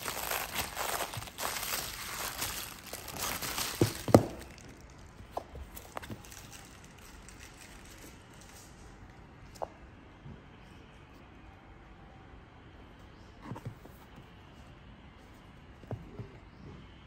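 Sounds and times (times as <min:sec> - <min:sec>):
bubble wrap crinkling: 0:00.0 - 0:08.8.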